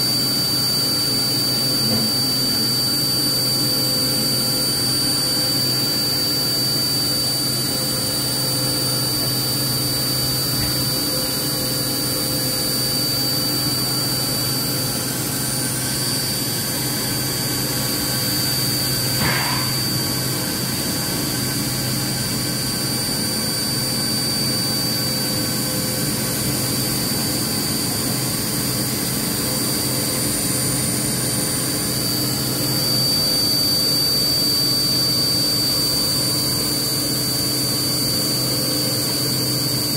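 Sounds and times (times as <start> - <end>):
high spindle whine: 0.1 - 39.9.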